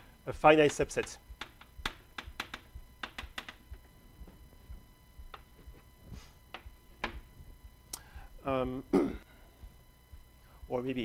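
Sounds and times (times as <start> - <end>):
chalk tapping on blackboard: 0.6 - 3.6.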